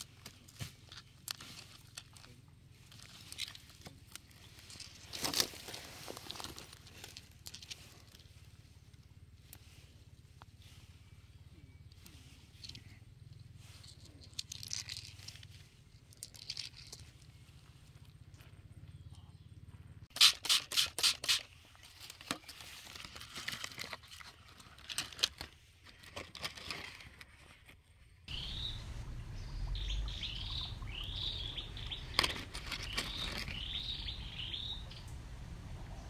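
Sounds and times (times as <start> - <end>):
small birds chirping: 0.0 - 20.1, 28.3 - 36.0
low rumble: 28.3 - 36.0
handling rustles: 31.6 - 33.8.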